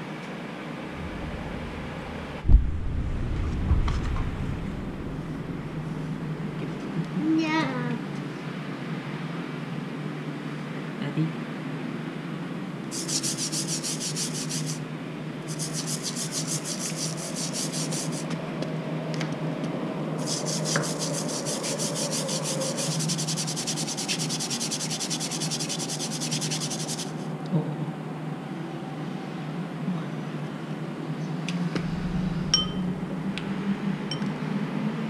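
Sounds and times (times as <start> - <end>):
low steady hum: 0.0 - 8.6, 26.7 - 35.0.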